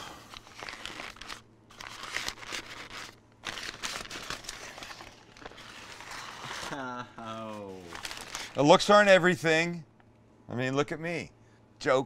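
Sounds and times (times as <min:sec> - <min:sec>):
paper crinkling and rustling: 0:00.3 - 0:08.8.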